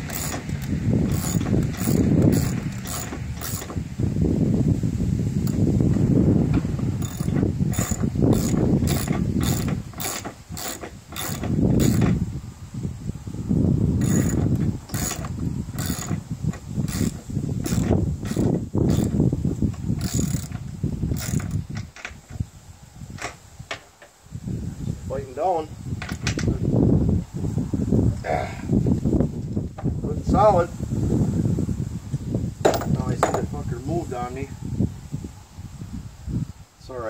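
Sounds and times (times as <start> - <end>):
ratchet wrench clicking: 0.0 - 3.8, 5.4 - 5.6, 7.0 - 12.2, 14.0 - 16.2, 16.8 - 19.2, 20.0 - 21.6.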